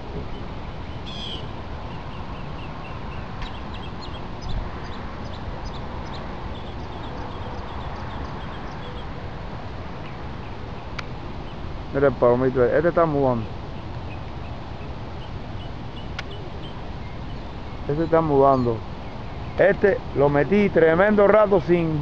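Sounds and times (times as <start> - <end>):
outdoor background noise: 0.0 - 22.0
faint bird chirps: 0.3 - 9.1.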